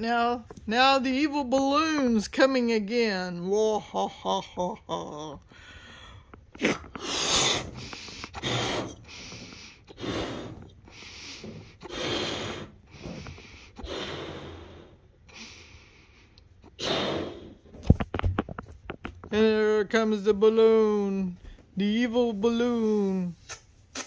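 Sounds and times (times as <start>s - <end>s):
breath drawn in: 5.6s - 17.6s
balloon being blown up: 6.5s - 10.6s, 16.8s - 17.9s.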